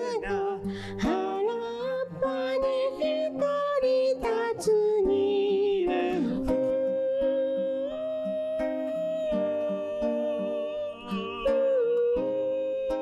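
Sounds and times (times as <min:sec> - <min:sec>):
strummed acoustic guitar: 0:00.0 - 0:13.0
man singing a held note: 0:05.4 - 0:13.0.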